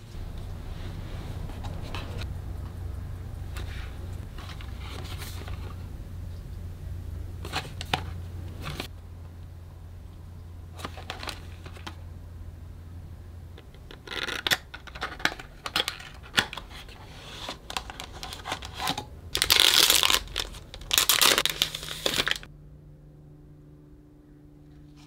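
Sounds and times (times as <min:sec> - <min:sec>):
plastic wrapper crinkling and tearing: 0:13.9 - 0:22.5
cardboard box being opened: 0:18.0 - 0:22.5.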